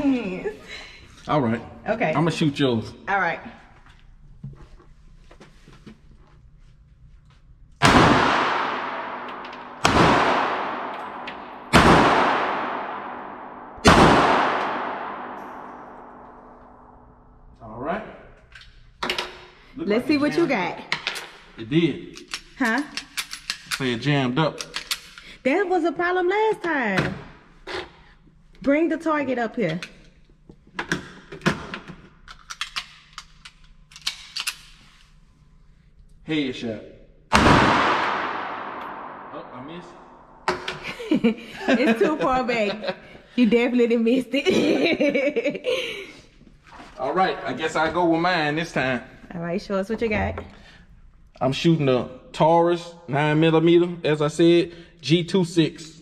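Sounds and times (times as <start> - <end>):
pistol shots with echo: 7.8 - 16.8, 37.3 - 40.4.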